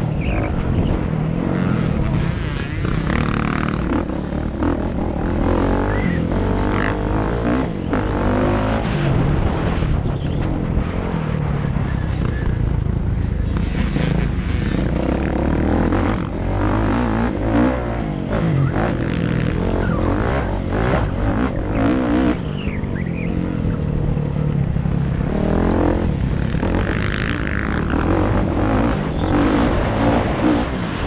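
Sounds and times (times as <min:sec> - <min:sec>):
motocross bike engine revving: 0:00.0 - 0:31.0
steady low rumble: 0:09.0 - 0:31.0.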